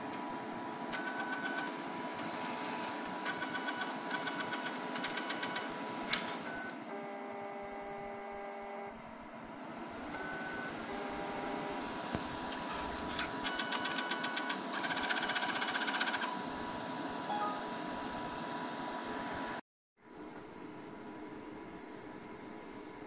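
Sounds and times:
pitched motor whine: 6.7s - 9.0s.

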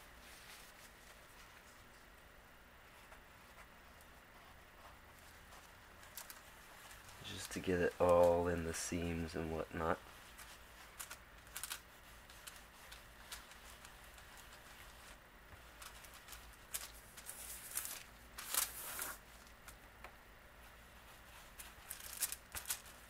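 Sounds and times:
paper towel rubbing leather: 2.9s - 16.5s.

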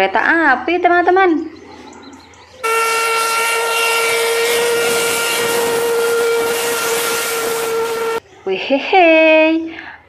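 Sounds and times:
steam hissing: 2.6s - 8.2s
steam whistle blast: 2.6s - 8.2s.

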